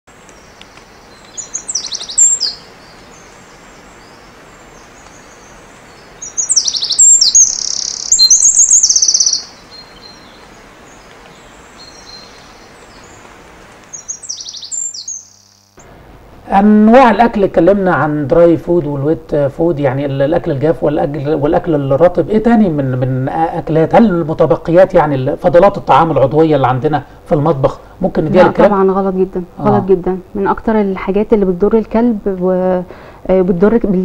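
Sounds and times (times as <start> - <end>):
faint hiss: 0.1 - 34.0
bird chirps: 0.2 - 13.2, 13.9 - 15.8.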